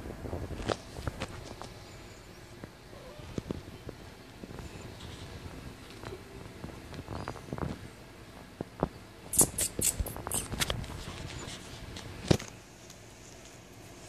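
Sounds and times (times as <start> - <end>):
scratchy rustles on woven mat: 9.4 - 12.5.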